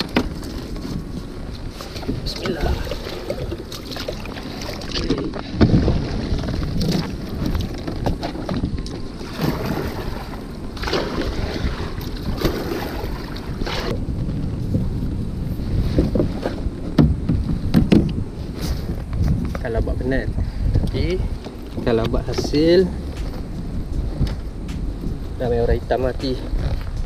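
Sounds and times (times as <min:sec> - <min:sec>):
kayak paddle splashing: 0:00.0 - 0:14.1
wind rumble on microphone: 0:00.0 - 0:27.0.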